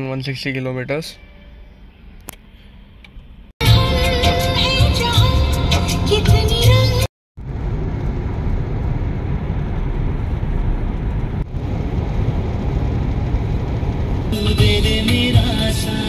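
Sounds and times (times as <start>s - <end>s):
background music: 3.6s - 7.1s, 14.3s - 16.0s
road and tyre rumble: 7.4s - 16.0s.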